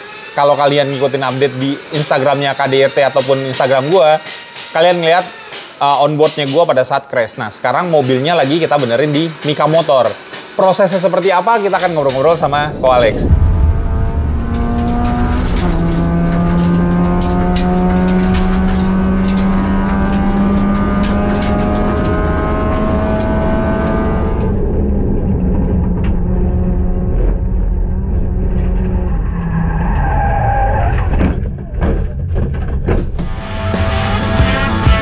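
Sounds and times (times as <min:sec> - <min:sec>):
race car engine pulling hard: 0:09.9 - 0:32.4
sharp knocks: 0:13.2 - 0:23.7.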